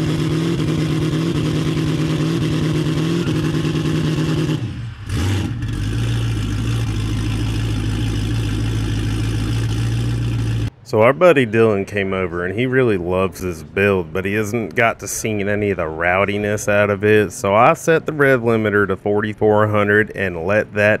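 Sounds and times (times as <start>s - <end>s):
turbocharged engine running: 0.0s - 11.0s.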